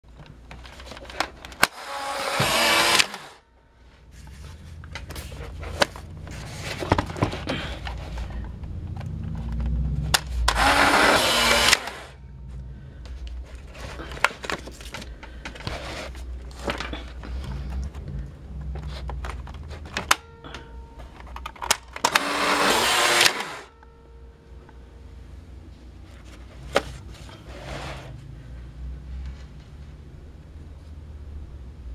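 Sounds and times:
camera motor whirring: 1.7s - 3.4s, 10.5s - 12.2s, 22.0s - 23.7s
camera handling clicks and knocks: 21.2s - 22.2s.

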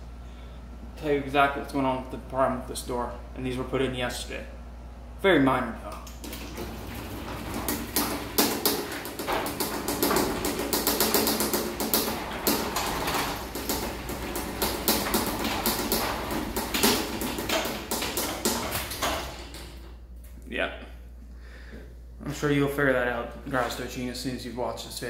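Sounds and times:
garage door opener motor: 6.0s - 20.2s
chain and rollers rattling: 6.4s - 19.8s.

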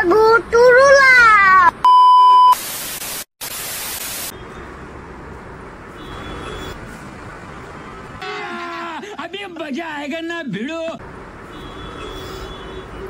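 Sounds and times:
traffic: 0.0s - 1.9s, 4.0s - 13.0s
high test-tone beep: 1.8s - 2.6s
tv static hiss: 2.5s - 4.3s.

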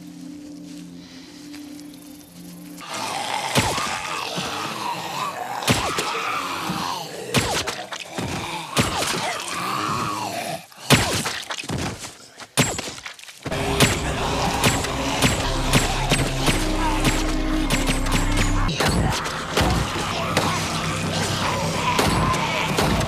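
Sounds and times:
zombie growling and snarling: 2.8s - 11.1s, 13.5s - 23.0s
sharp hit impacts: 13.5s - 20.9s.

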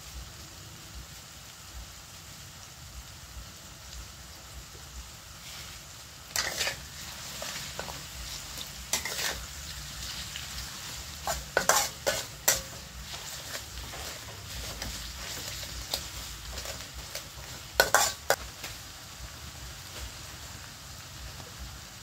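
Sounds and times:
vegetables sizzling in oil: 0.0s - 22.0s
metal spatula scraping wok: 5.3s - 18.7s.

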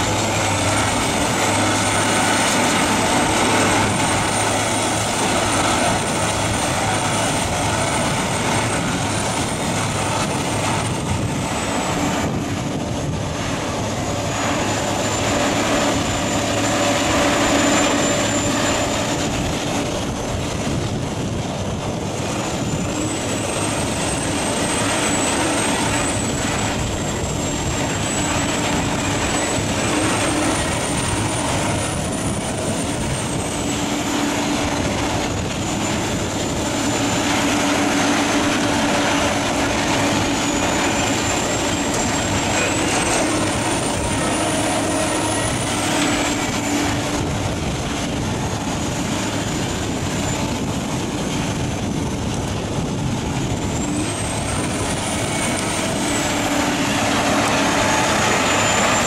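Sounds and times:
wood shredder running: 0.0s - 7.4s, 55.3s - 59.0s
thin high whine: 0.0s - 59.0s.

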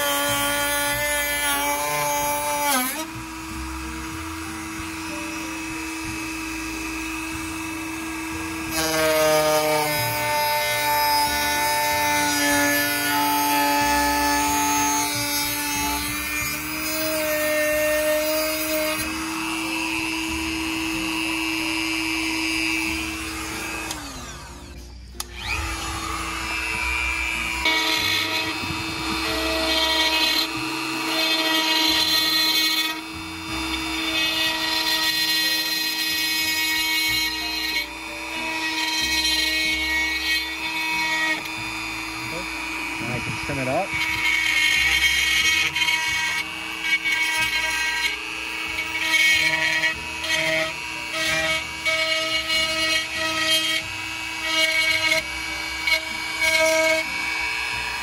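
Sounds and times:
rotary tool motor whine: 17.7s - 58.0s.

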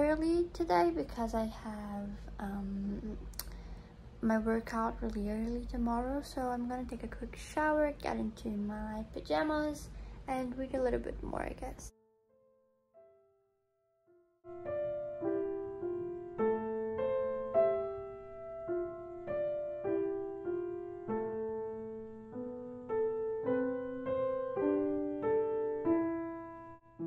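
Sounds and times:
piano music: 11.4s - 27.0s.

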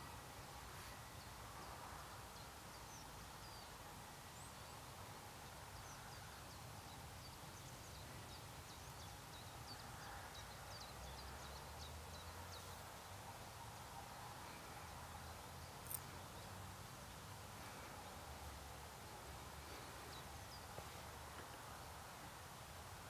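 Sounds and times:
small birds chirping: 4.4s - 22.4s.

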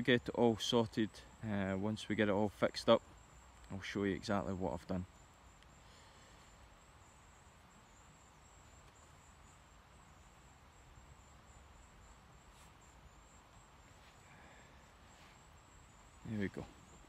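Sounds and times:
outdoor background hiss: 0.0s - 17.0s
faint ticks: 5.5s - 5.8s.

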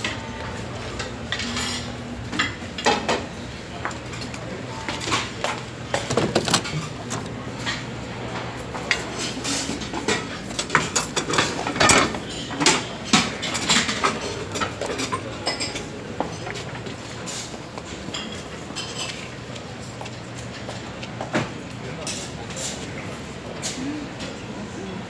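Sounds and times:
dishes and cutlery clinking: 8.9s - 19.4s.

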